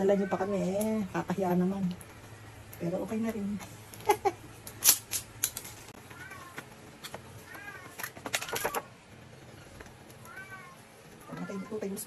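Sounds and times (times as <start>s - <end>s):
animal cries: 10.2s - 12.0s.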